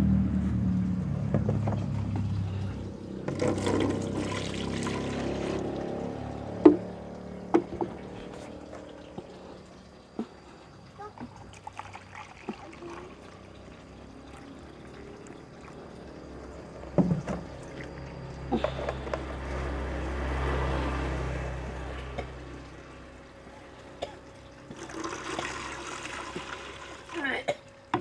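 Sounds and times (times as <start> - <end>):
liquid pouring into plastic jug: 3.1 - 19.1, 24.2 - 27.3
liquid pouring into plastic bucket: 3.2 - 10.0, 11.1 - 19.0, 24.3 - 27.3.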